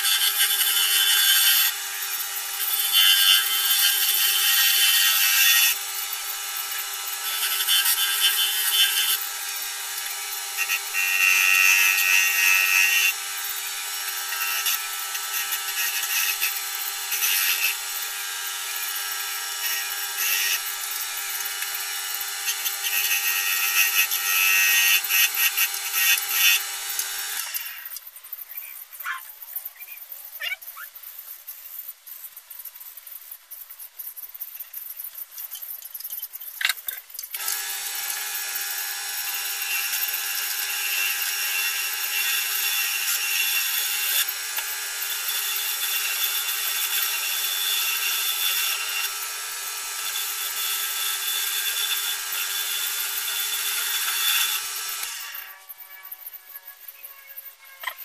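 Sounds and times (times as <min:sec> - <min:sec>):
wood lathe humming: 0:00.0 - 0:27.9, 0:37.4 - 0:55.7
turning tool cutting wood: 0:00.0 - 0:28.0, 0:36.1 - 0:58.0.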